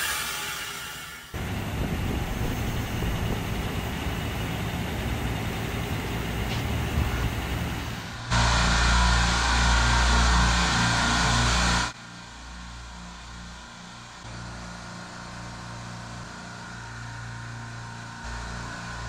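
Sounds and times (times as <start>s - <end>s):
outdoor mechanical drone: 0.0s - 19.0s
compressors humming: 1.4s - 11.9s.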